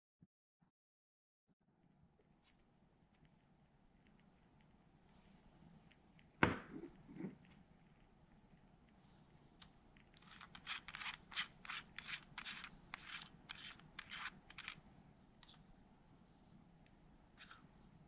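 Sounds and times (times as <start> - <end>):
fingers scratching metal casing: 10.0 - 14.8.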